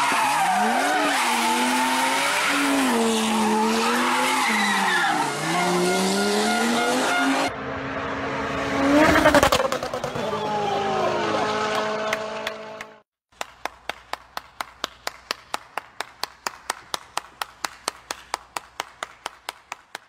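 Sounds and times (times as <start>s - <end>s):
roadside spectators: 0.0s - 20.0s
rally car passing: 5.1s - 13.0s
person clapping: 13.3s - 20.0s.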